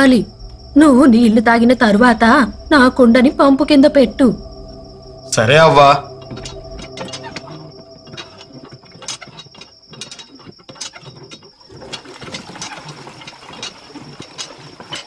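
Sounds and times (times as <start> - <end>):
hand pump handle creaking: 6.2 - 15.0
water gushing from spout: 8.9 - 15.0.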